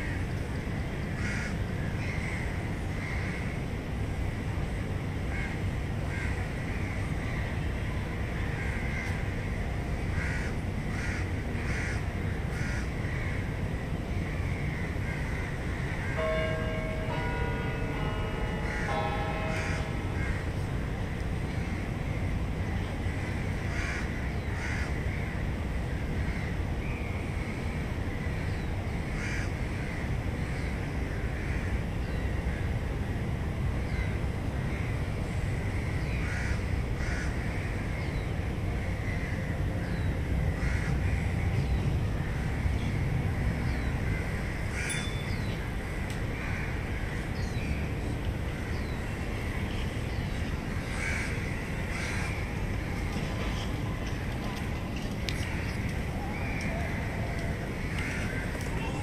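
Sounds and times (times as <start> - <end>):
low city rumble: 0.0 - 59.0
birds calling: 14.3 - 25.4, 39.0 - 59.0.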